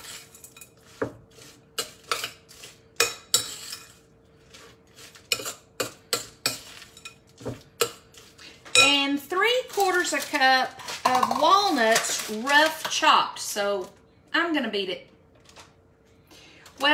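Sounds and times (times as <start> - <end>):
metal spoon scraping glass bowl: 0.0 - 7.2.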